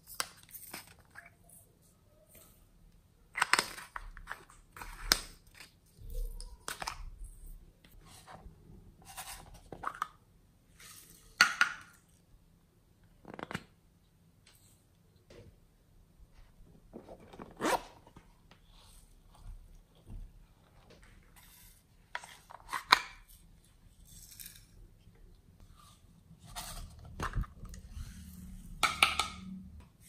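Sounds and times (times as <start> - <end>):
plastic containers being handled: 16.3 - 23.4, 25.6 - 29.7.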